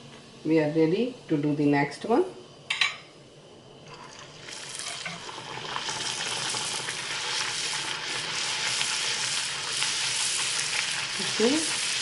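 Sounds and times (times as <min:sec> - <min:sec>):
dough deep-frying in hot oil: 0:03.9 - 0:12.0.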